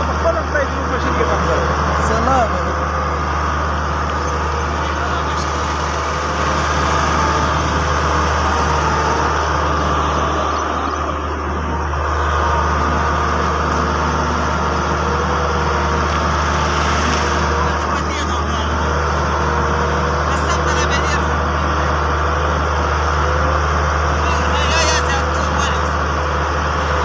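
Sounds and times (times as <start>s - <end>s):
diesel excavator engine running: 0.0s - 27.0s.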